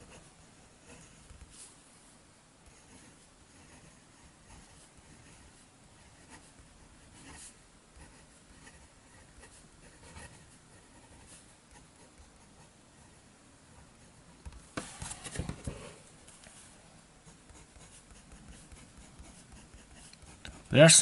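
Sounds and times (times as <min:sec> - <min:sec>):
pen nib scratching on paper: 0:00.0 - 0:01.5, 0:02.6 - 0:12.8, 0:17.2 - 0:20.8.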